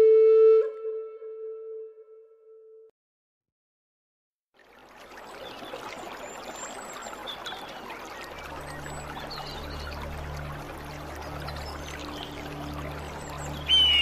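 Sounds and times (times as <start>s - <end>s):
rushing water-like noise: 4.6s - 14.0s.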